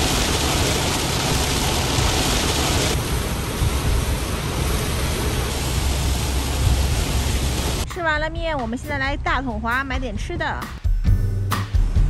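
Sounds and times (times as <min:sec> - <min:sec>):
heavy rain hissing: 0:00.0 - 0:07.9
low rumble: 0:00.0 - 0:08.5.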